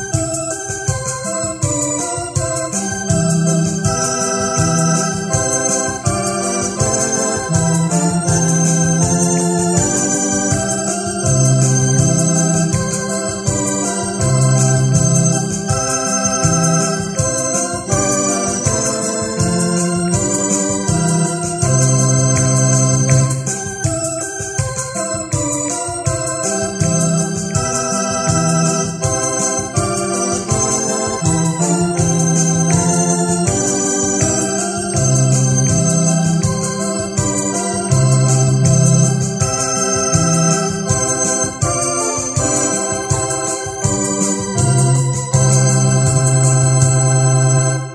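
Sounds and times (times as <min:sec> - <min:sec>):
steady beat: 0:00.0 - 0:47.1
keyboard organ chords: 0:00.0 - 0:47.9.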